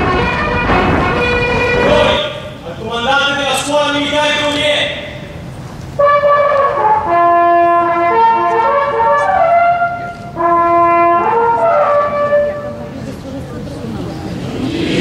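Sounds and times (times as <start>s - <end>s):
brass ensemble playing held chords: 0.0s - 2.6s, 5.9s - 12.9s.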